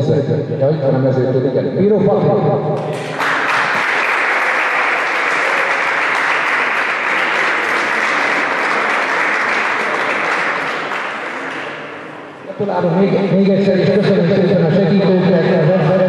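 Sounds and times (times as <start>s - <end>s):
audience applauding: 2.9s - 12.3s.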